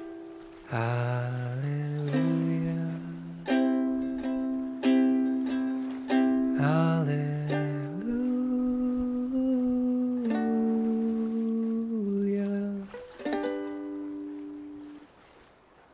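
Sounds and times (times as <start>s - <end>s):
person humming: 0.7s - 4.0s, 6.5s - 13.0s
plucked guitar strings: 12.9s - 14.9s.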